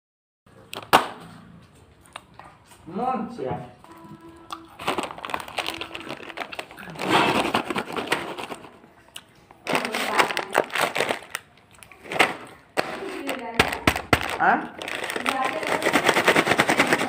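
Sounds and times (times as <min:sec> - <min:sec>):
plastic snack packet crinkling: 0:03.9 - 0:17.0.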